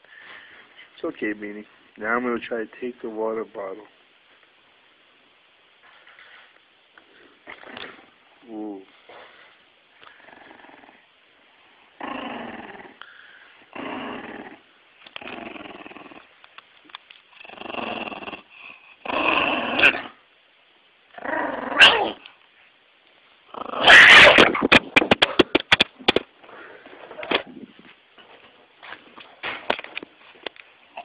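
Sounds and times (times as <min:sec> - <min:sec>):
dog growling: 0:10.1 - 0:11.1, 0:11.9 - 0:16.3, 0:17.4 - 0:20.2, 0:21.1 - 0:22.3, 0:23.5 - 0:24.6.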